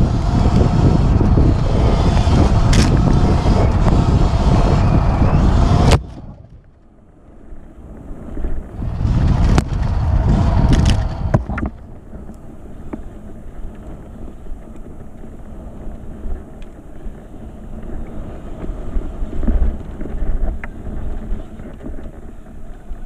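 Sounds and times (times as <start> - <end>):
wind buffeting microphone: 0.0 - 6.8, 7.4 - 23.0
tyres rumbling over dirt: 0.0 - 7.0, 7.7 - 12.4
faint electric motor whine: 0.0 - 23.0.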